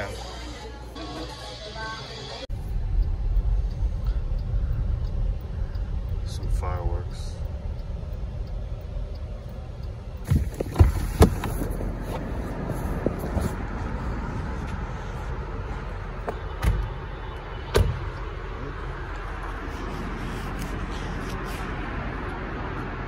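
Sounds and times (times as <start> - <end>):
car road rumble: 2.5 - 23.0.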